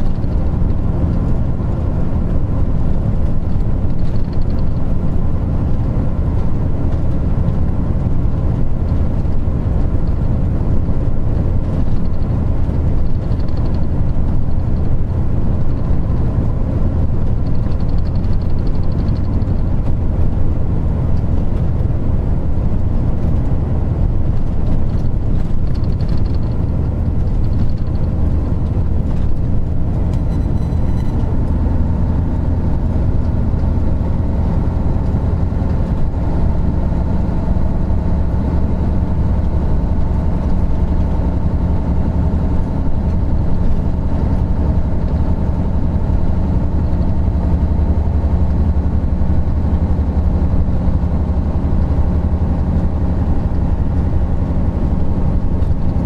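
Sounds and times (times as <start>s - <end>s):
bus diesel engine running: 0.0s - 56.0s.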